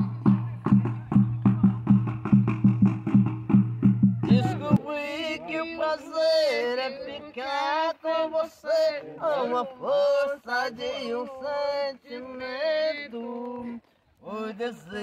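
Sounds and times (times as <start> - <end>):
man singing unaccompanied: 4.2 - 15.0.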